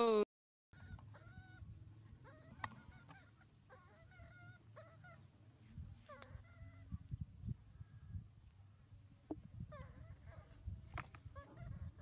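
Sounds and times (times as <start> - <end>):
baby monkey high calls: 0.8 - 1.6, 2.2 - 5.3, 6.0 - 7.0.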